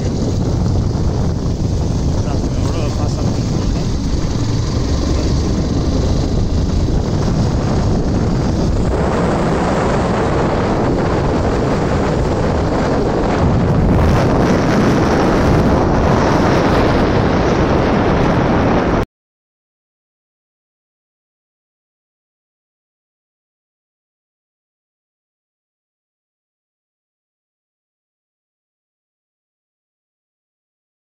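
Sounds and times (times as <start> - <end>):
vehicle engine and road noise: 0.0 - 19.0
wind rushing over microphone: 0.0 - 19.1.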